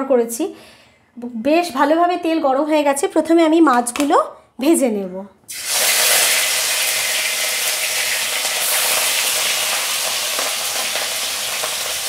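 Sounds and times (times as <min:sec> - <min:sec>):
fish sizzling in hot oil: 0:05.5 - 0:12.0.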